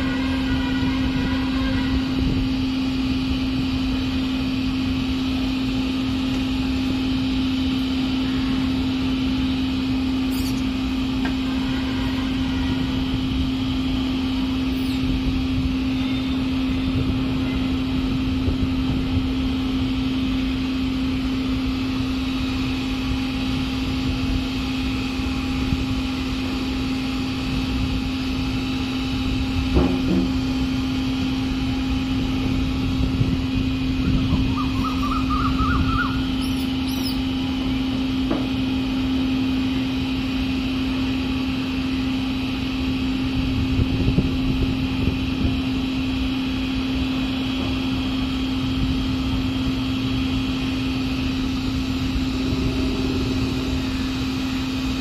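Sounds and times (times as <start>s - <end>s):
machinery humming: 0.0s - 55.0s.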